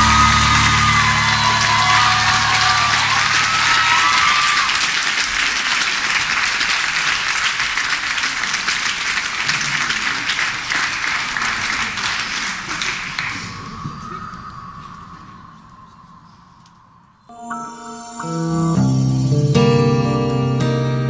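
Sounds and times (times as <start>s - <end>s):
audience applauding: 0.0s - 14.3s
music note: 17.2s - 20.9s.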